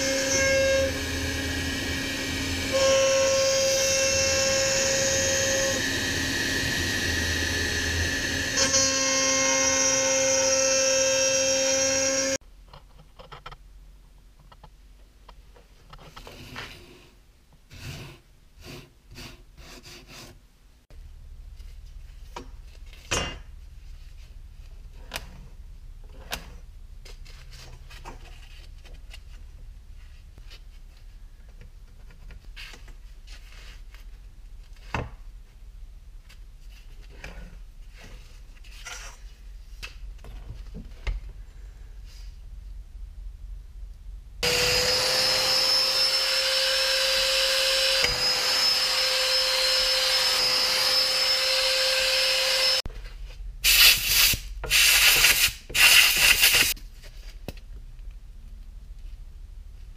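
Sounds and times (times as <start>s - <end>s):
power tool whining: 0.0s - 12.4s, 44.4s - 52.8s.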